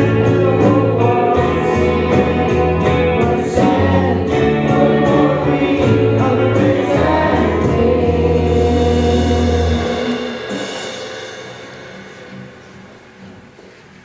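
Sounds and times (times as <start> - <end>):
voices singing: 0.0 - 10.6
live band playing: 0.0 - 14.0.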